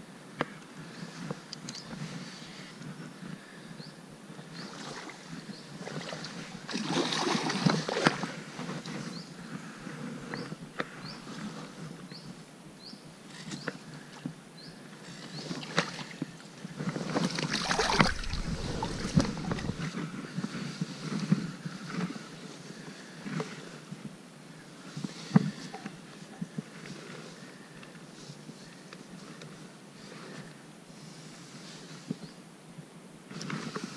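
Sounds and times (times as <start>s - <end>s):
fish splashing in water: 17.4s - 19.8s.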